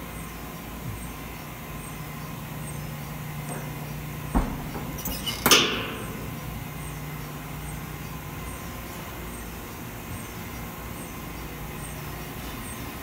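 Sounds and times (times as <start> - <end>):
lab machinery hum: 0.0 - 13.0
thump: 4.3 - 4.8.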